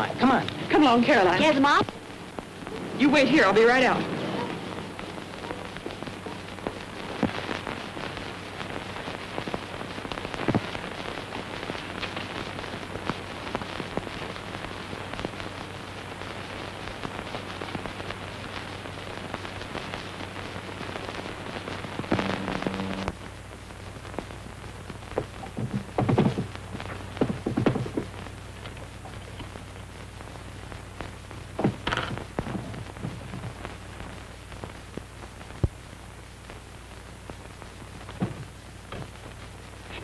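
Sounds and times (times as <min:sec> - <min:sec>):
film soundtrack crackle and hiss: 0:00.0 - 0:40.0
low steady hum: 0:00.0 - 0:40.0
short low pitched tone: 0:22.2 - 0:23.1.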